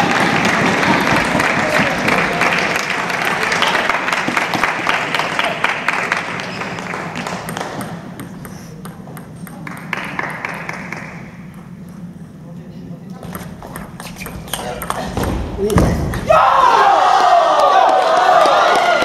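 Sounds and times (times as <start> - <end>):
crowd cheering and clapping: 0.0 - 7.8, 16.2 - 19.0
table tennis ball pinging: 6.5 - 10.4, 13.2 - 16.3.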